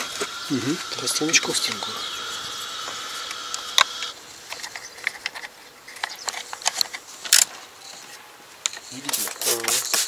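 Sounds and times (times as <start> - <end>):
steady high whine: 0.0 - 5.1
plastic parts clicking: 3.3 - 7.5.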